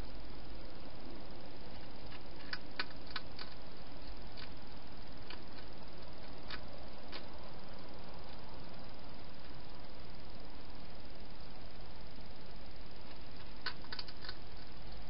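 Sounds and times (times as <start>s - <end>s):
steady hiss: 0.0s - 15.0s
hedgehog crunching food: 1.7s - 4.6s, 5.2s - 7.3s, 13.1s - 14.7s.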